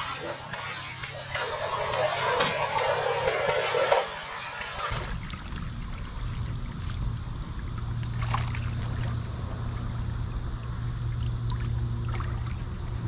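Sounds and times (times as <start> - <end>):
steady low hum: 0.0 - 13.0
water sloshing and dripping: 0.3 - 10.0, 11.0 - 13.0
small water splashes: 3.9 - 9.3, 11.1 - 13.0.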